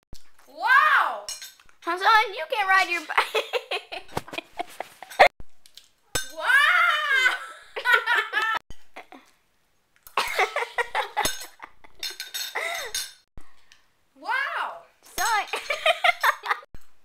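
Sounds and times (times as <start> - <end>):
children laughing: 6.9 - 9.3, 10.2 - 12.8, 15.5 - 16.7.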